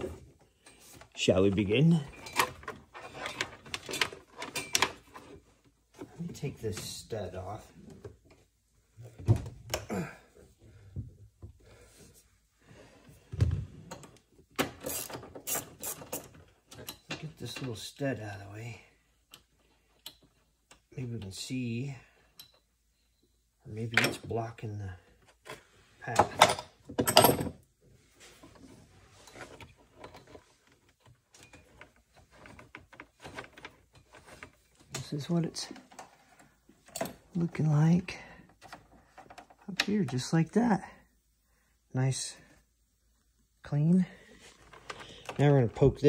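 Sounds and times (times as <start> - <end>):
knocks and rustling of plastic panels: 0.0 - 9.9, 25.4 - 37.7
wiring rustling: 28.0 - 40.7.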